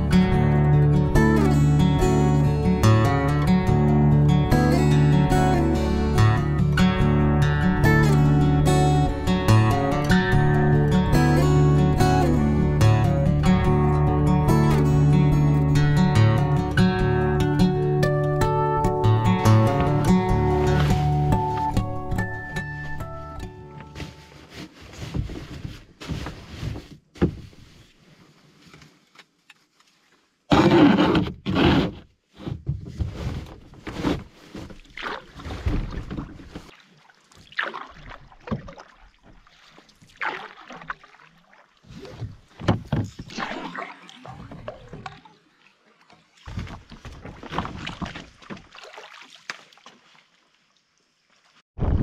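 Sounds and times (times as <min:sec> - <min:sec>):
water against hull: 0:19.3 - 0:52.0
paddle splashes: 0:19.7 - 0:21.7, 0:33.2 - 0:52.0.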